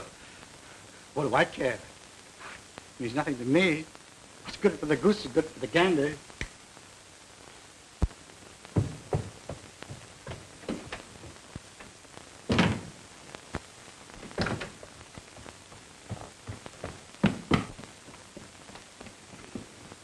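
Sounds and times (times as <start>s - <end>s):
footsteps on staircase: 8.8s - 11.4s, 15.2s - 19.2s
thuds: 8.8s - 11.4s, 16.1s - 17.8s
door shutting: 12.5s - 12.9s, 14.4s - 14.8s.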